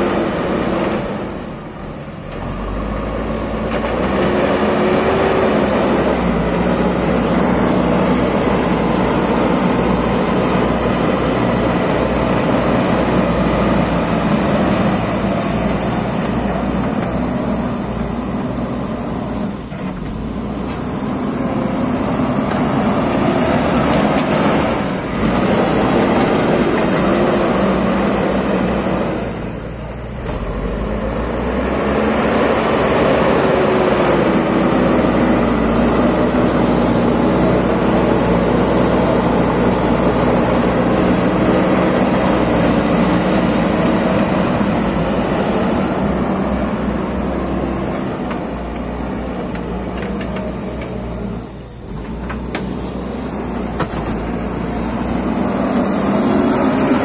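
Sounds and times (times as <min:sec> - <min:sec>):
diesel engine working under load: 0:00.0 - 0:57.0.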